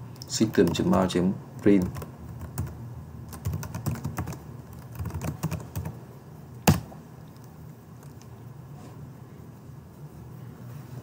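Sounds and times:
keyboard typing: 0.3 - 1.0, 1.6 - 6.0.

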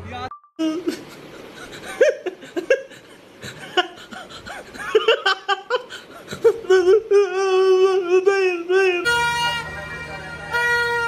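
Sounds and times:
laughter in short bursts: 0.6 - 7.4.

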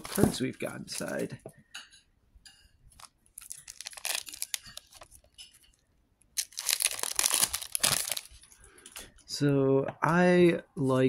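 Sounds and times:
cellophane tearing and crinkling: 3.0 - 5.4, 6.4 - 8.5.

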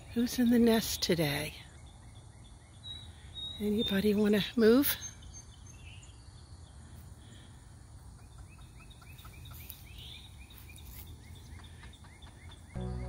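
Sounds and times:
low rumble: 12.8 - 13.0.

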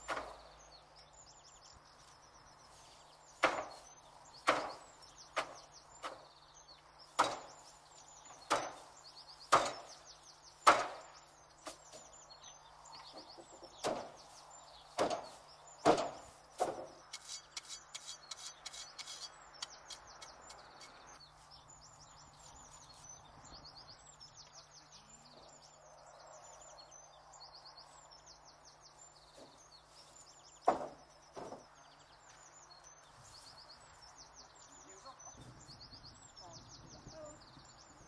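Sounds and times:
small birds chirping: 0.0 - 38.0
sharp wooden knocks: 3.4 - 3.8, 4.4 - 6.2, 7.2 - 7.6, 8.5 - 8.8, 9.5 - 9.9, 10.6 - 11.0, 13.2 - 14.2, 15.0 - 19.2, 30.6 - 31.6.

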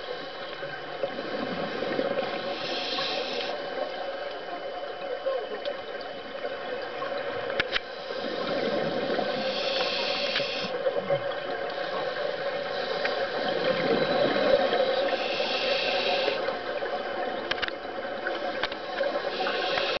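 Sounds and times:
underwater bubbling: 0.0 - 20.0
regulator hissing inhalations: 2.3 - 3.7, 7.8 - 10.8, 15.0 - 16.6, 18.8 - 20.0.

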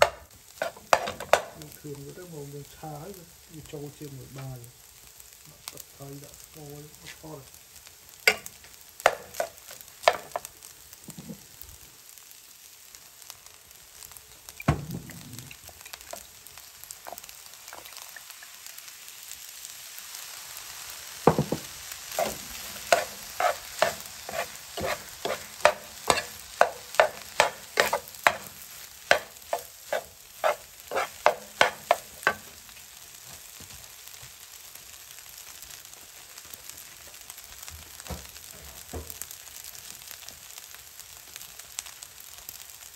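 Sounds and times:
metal spatula scraping pan: 0.0 - 1.6, 22.1 - 32.5
rice sizzling in frying pan: 0.0 - 42.9.

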